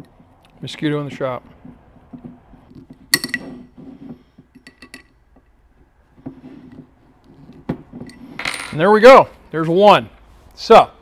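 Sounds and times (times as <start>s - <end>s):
metallic clinks of allen key and screws: 4.5s - 5.2s.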